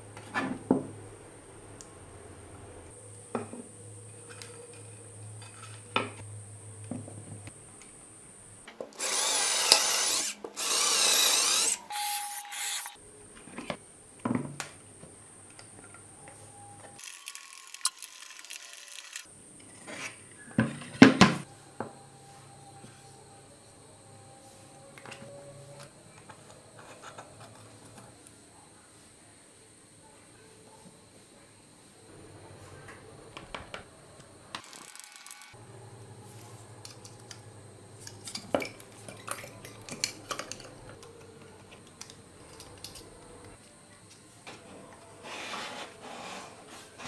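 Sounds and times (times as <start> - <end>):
small power tool running: 9.0 - 13.0, 17.0 - 19.3
small parts clicking: 17.0 - 19.3.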